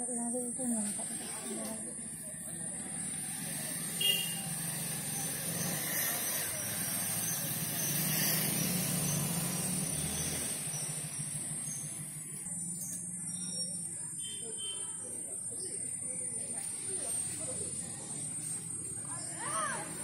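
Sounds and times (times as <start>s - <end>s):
vehicle passing: 0.8s - 12.9s, 16.3s - 20.0s.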